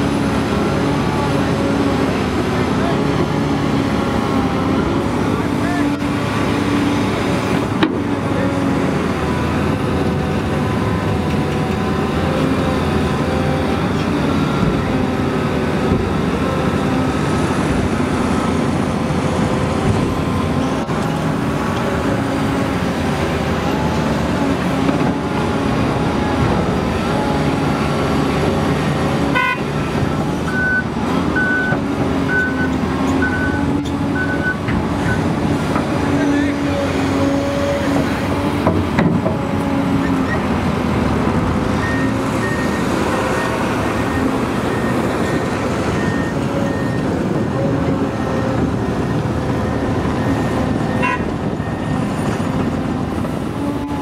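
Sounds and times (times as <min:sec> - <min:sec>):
excavator diesel engine running: 0:00.0 - 0:54.0
reversing alarm beeps: 0:30.5 - 0:35.2, 0:41.8 - 0:47.0.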